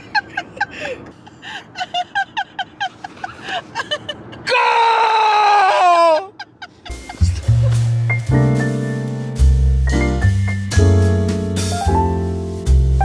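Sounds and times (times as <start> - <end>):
woman laughing hard: 0.0 - 4.5, 5.6 - 7.9.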